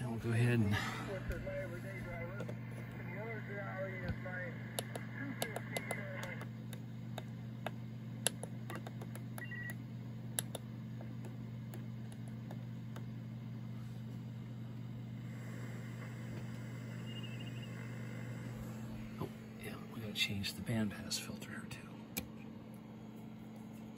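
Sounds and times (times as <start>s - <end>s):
radio receiver hum and hiss: 0.0s - 9.8s, 13.4s - 23.9s
sharp clicks: 10.4s - 13.1s.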